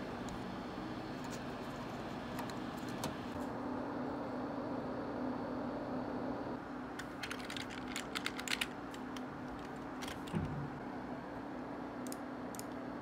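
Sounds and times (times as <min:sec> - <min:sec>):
steady low hum: 0:00.0 - 0:13.0
keyboard and mouse clicks: 0:07.0 - 0:10.5.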